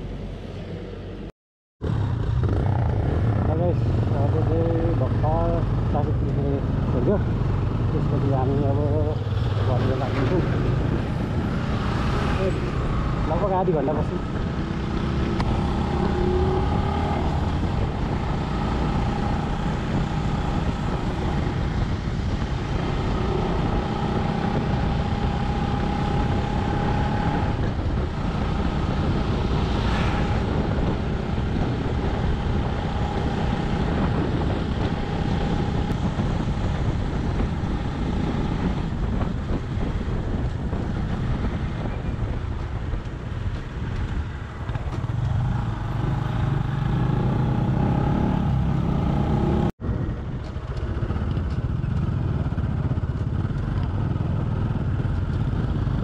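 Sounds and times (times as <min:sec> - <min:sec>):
wind noise on microphone: 0:00.0 - 0:56.0
motorcycle engine running: 0:30.3 - 0:56.0.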